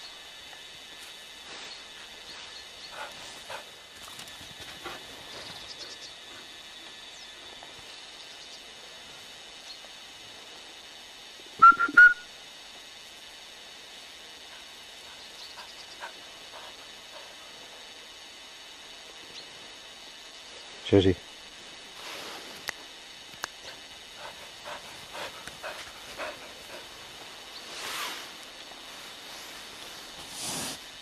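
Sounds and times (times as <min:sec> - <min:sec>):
tape hiss: 0:00.0 - 0:31.0
high whistle pips: 0:11.6 - 0:12.3.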